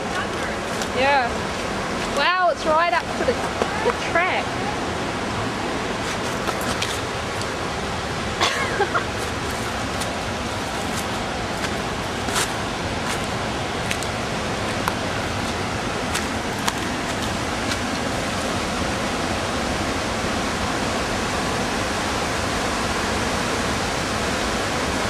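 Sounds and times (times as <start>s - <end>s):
flooded river rushing: 0.0s - 25.0s.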